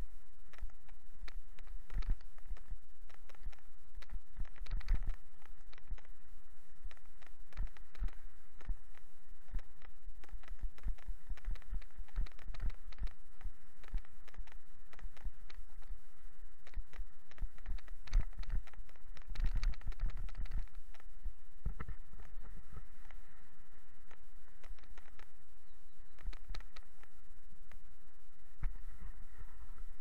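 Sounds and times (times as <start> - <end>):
bicycle rattling on a road: 0.5 - 6.2, 6.9 - 15.9, 16.7 - 23.2.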